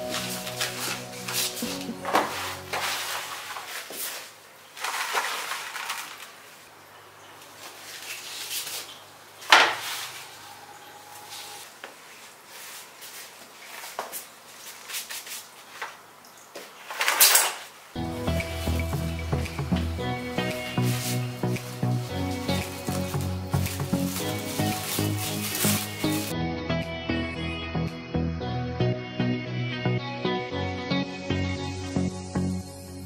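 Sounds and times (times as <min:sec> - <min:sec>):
hands rustling potting soil: 0:00.0 - 0:17.0, 0:18.0 - 0:26.3.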